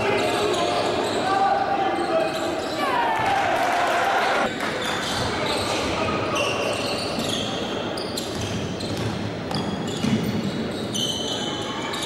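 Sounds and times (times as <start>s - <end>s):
sneaker squeaks: 0.0s - 2.9s, 4.8s - 12.0s
basketball bouncing on court: 8.2s - 10.4s.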